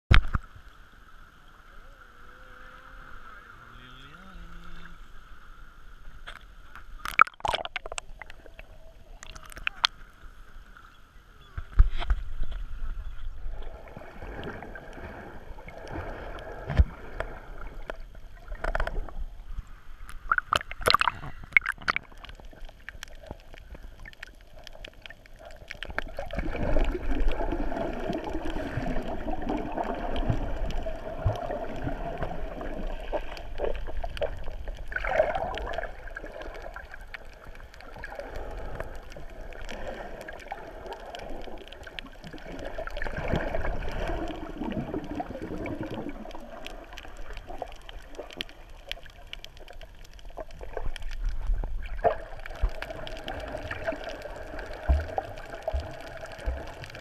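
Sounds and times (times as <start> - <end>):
sharp clicks and pops: 0.1 - 0.5, 6.2 - 10.0, 17.8 - 19.2, 20.1 - 27.4
underwater gurgling and sloshing: 0.1 - 57.0
water churning: 7.0 - 10.0, 13.3 - 57.0.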